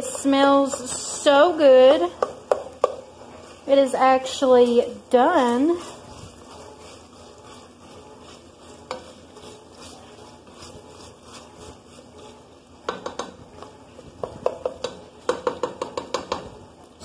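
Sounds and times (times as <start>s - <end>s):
spoon scraping sausage in pot: 0.0s - 16.7s
light sizzle of fat: 0.0s - 17.0s
spoon tapping against pot: 2.1s - 3.0s, 12.8s - 13.4s, 14.2s - 16.5s.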